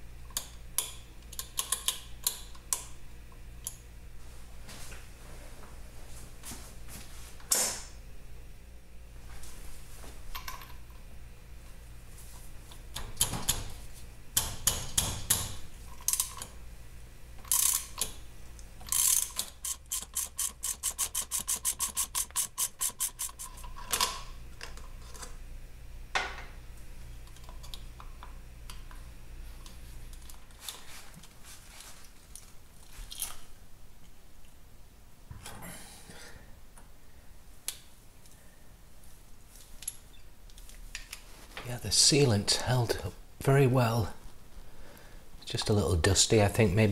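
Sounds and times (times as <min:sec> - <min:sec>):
socket ratchet clicking: 0:17.4 - 0:18.2, 0:18.8 - 0:23.6.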